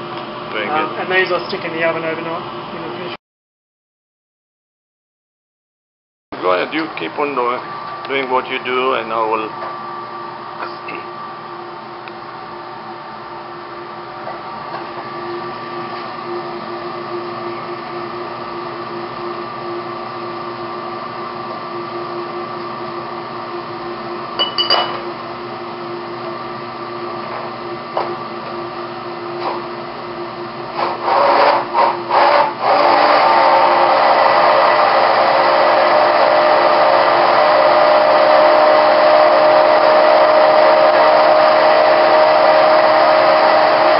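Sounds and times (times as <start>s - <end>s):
fan hum: 0.0s - 3.2s, 6.4s - 43.9s
immersion blender running: 25.7s - 43.9s.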